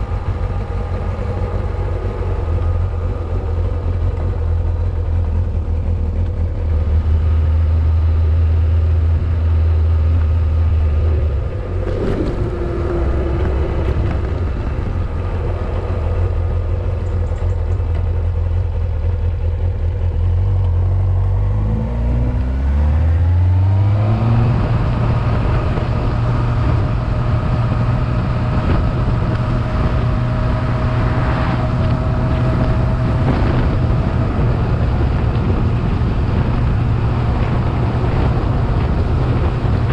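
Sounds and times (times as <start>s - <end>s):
motorcycle engine accelerating: 0.0s - 39.9s
rushing wind: 0.0s - 39.9s.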